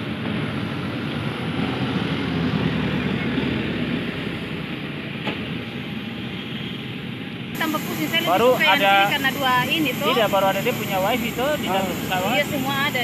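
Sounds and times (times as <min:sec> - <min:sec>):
bus driving past: 0:00.0 - 0:07.6.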